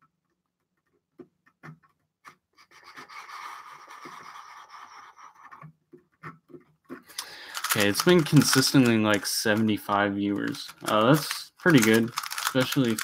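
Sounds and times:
plastic rasp of fast turning: 0.1s - 9.2s, 10.3s - 13.0s
speedcube turning clicks: 7.1s - 8.9s, 10.4s - 13.0s.

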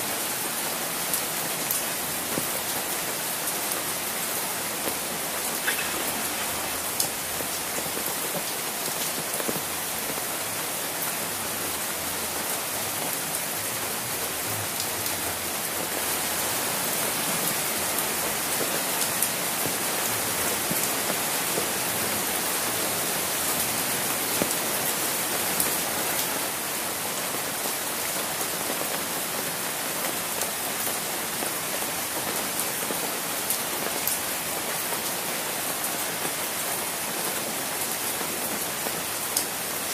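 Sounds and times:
steady rain falling: 0.0s - 39.9s
close raindrop striking: 4.8s - 9.6s.

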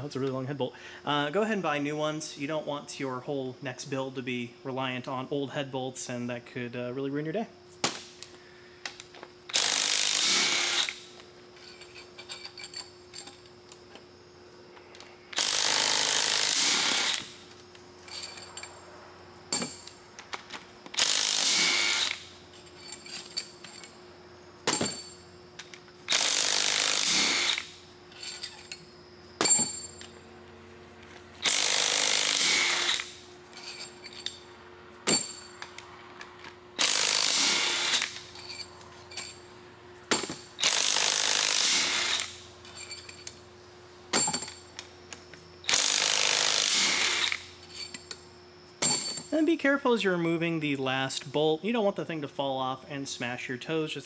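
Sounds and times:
impact wrench hammering bolts: 8.9s - 11.0s, 15.3s - 17.4s, 19.5s - 24.0s, 24.6s - 28.8s, 29.4s - 30.2s, 31.4s - 34.4s, 35.0s - 35.8s, 36.4s - 39.4s, 40.1s - 43.4s, 44.1s - 44.9s, 45.7s - 48.2s, 48.8s - 49.4s.

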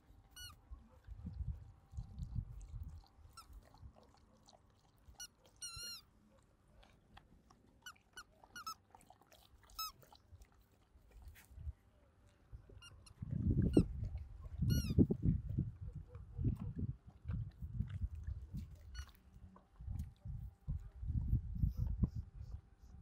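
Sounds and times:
rubber squeaky toy squeaking: 0.3s - 0.6s, 5.2s - 6.0s, 7.8s - 8.8s, 9.8s - 10.0s, 12.8s - 13.9s, 14.6s - 15.0s.

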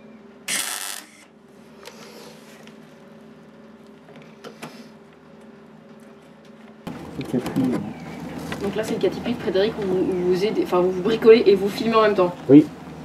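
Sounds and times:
welding set electrical hum: 0.0s - 13.0s.

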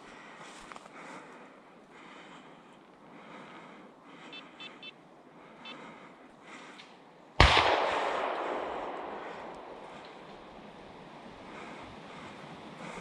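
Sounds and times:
gunshot echoing: 7.4s - 10.8s.

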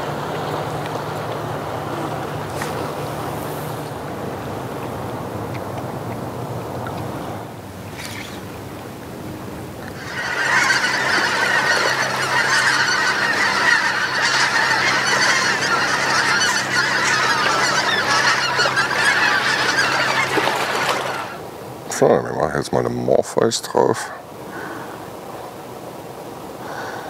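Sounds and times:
geese honking in flight: 9.7s - 21.5s.

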